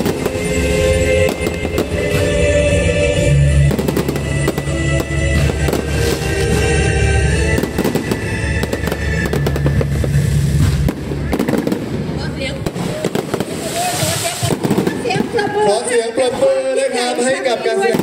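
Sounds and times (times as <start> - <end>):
fireworks bangs and crackles: 0.0 - 2.4, 3.6 - 18.0
loud music with heavy bass: 0.0 - 12.1.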